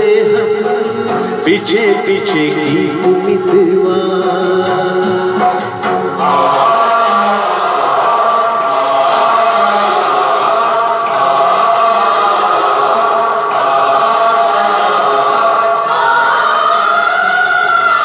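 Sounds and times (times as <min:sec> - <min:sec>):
synthesizer chords: 0:00.0 - 0:18.0.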